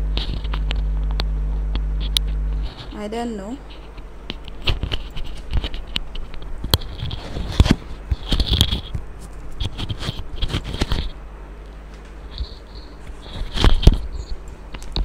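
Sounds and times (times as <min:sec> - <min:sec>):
microphone handling noise: 0:03.6 - 0:11.2, 0:11.9 - 0:15.0.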